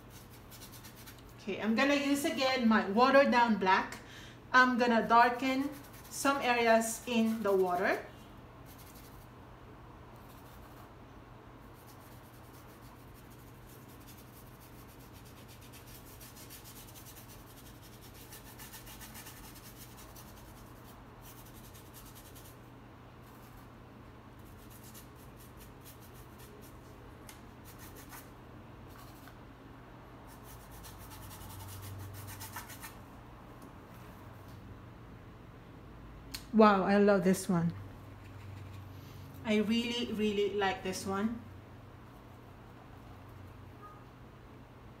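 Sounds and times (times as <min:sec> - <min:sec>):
low steady hum: 0:00.0 - 0:45.0
paintbrush stroking canvas: 0:05.6 - 0:06.4.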